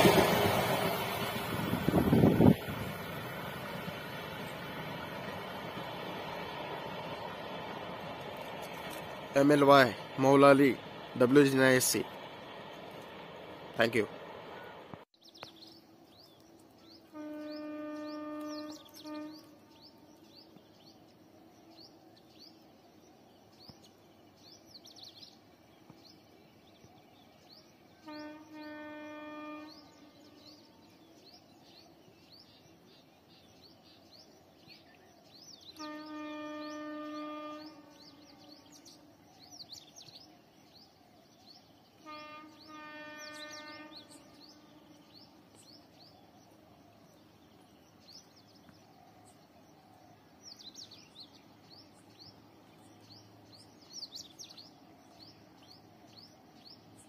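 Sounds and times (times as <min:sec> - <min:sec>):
birds chirping: 0:00.0 - 0:57.0
distant train horn blasts: 0:17.0 - 0:20.4, 0:27.9 - 0:30.9, 0:35.6 - 0:39.4, 0:41.9 - 0:45.6.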